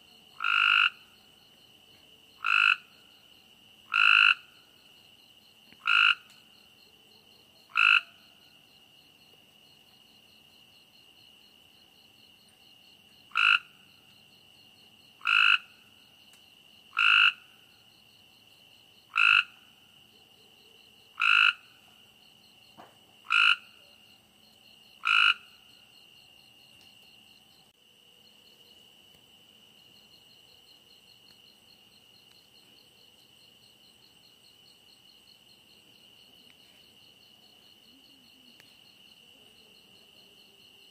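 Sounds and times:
frog croaking: 0:00.3 - 0:01.2, 0:02.3 - 0:03.2, 0:03.8 - 0:04.7, 0:05.8 - 0:06.4, 0:07.7 - 0:08.4, 0:13.3 - 0:14.1, 0:15.2 - 0:16.0, 0:16.9 - 0:17.8, 0:19.0 - 0:19.8, 0:21.1 - 0:22.0, 0:23.2 - 0:24.0, 0:24.9 - 0:25.9.

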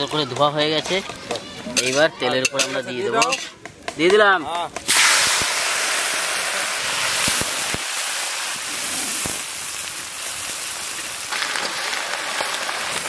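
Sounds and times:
vegetables sizzling in hot oil: 0:04.8 - 0:13.0.

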